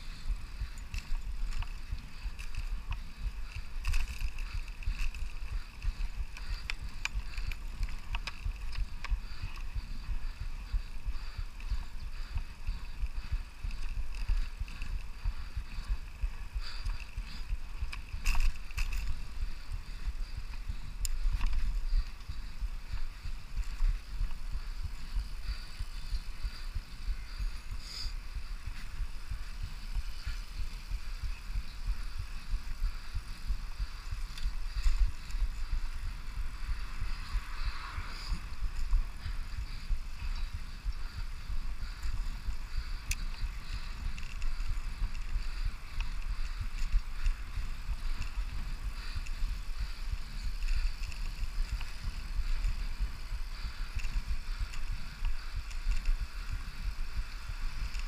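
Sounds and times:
wind buffeting microphone: 0.0s - 58.0s.

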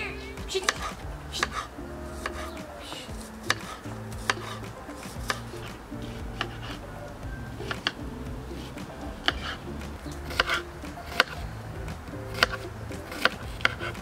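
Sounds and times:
quiet background music: 0.0s - 14.0s
knife chopping on cutting board: 2.2s - 6.8s, 12.3s - 14.0s.

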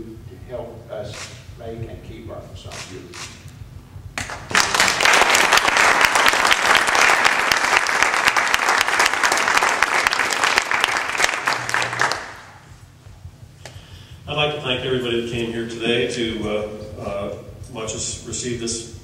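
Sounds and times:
audience clapping: 4.2s - 12.8s.

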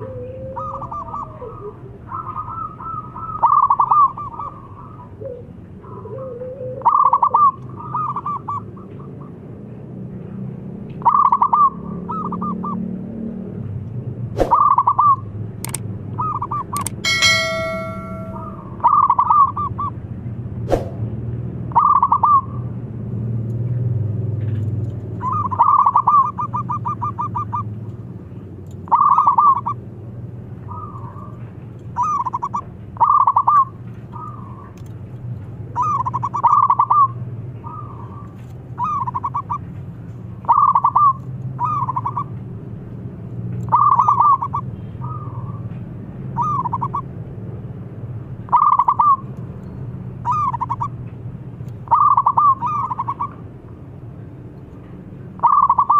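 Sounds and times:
dove cooing: 0.0s - 8.5s.

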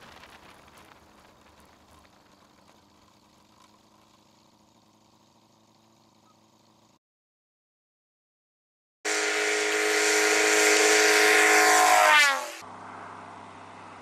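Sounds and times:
distant plane engine drone: 1.2s - 7.0s, 9.1s - 14.0s.

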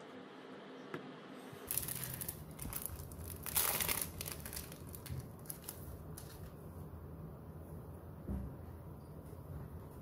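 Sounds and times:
plastic wrapping crinkling: 1.6s - 6.6s.

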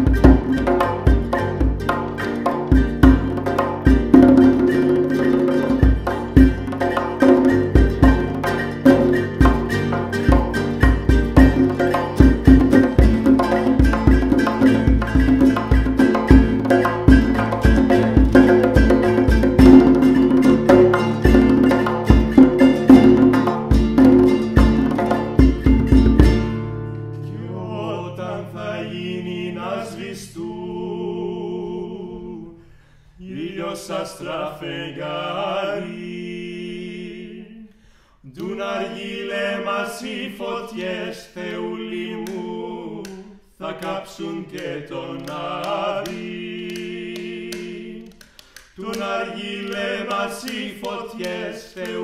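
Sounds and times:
frame drum: 0.0s - 26.7s
plucked strings: 0.0s - 29.7s
men singing in harmony: 27.3s - 32.6s, 33.2s - 37.7s, 38.3s - 52.0s.

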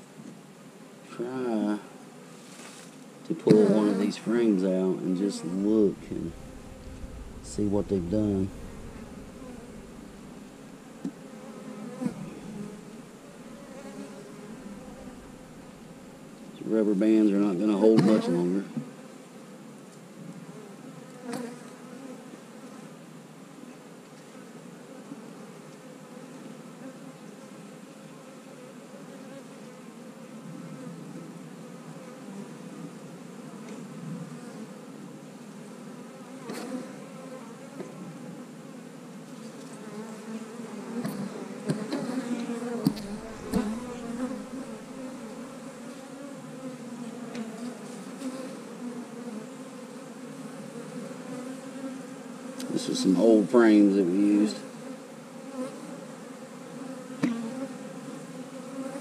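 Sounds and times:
honey bees buzzing: 3.5s - 16.7s, 39.8s - 59.0s.

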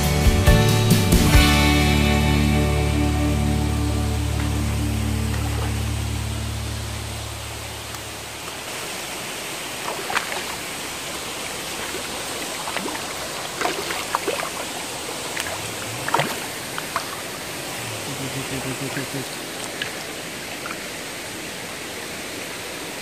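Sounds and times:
river water rushing over rocks: 3.4s - 23.0s
fish splashing at the surface: 8.4s - 21.1s.

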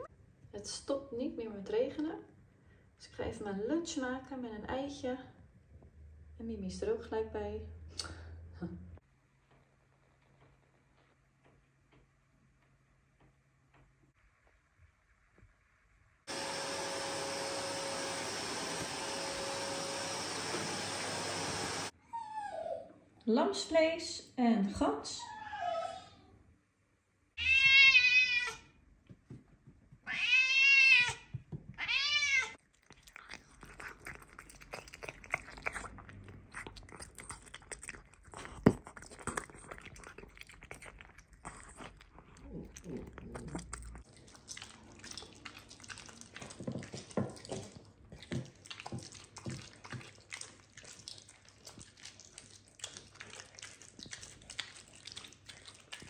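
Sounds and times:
cat meowing: 27.4s - 28.7s, 30.0s - 32.6s
clicking and chewing noises: 32.6s - 56.0s.

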